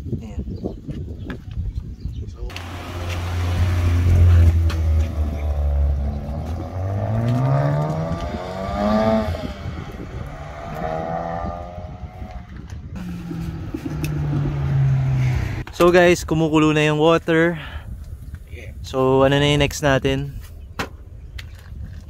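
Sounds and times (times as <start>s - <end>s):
car engine accelerating: 2.5s - 15.8s.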